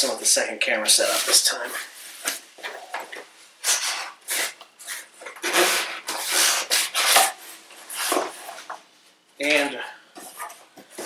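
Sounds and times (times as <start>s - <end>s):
cardboard box tape tearing: 3.6s - 8.6s.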